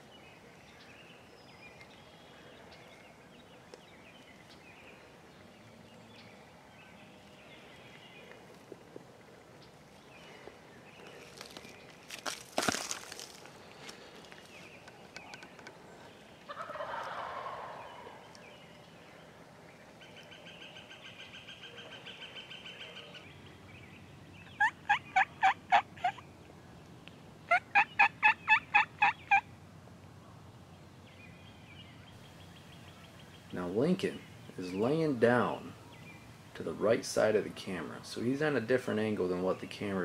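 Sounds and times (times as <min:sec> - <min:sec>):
turkey yelping: 0:16.5 - 0:18.2, 0:24.5 - 0:26.2, 0:27.5 - 0:29.5.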